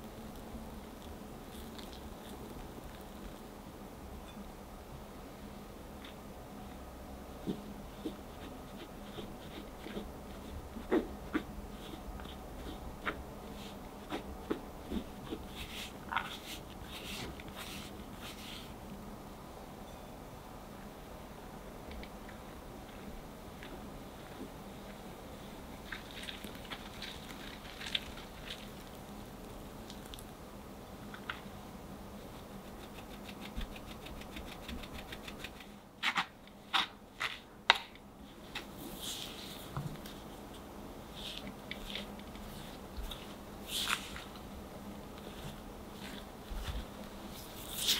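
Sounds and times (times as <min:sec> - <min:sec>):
powder rustling through mesh: 0:25.8 - 0:30.3, 0:41.1 - 0:47.9.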